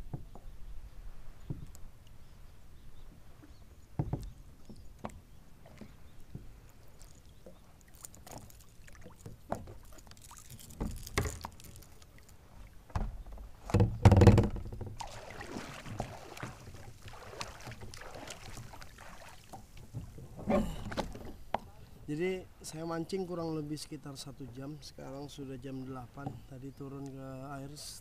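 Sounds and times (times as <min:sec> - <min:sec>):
water lapping against plastic hull: 0:03.0 - 0:22.0
water sloshing: 0:03.2 - 0:21.7
loud thump on hull: 0:12.9 - 0:17.7
paddle knocking on hull: 0:12.9 - 0:21.6.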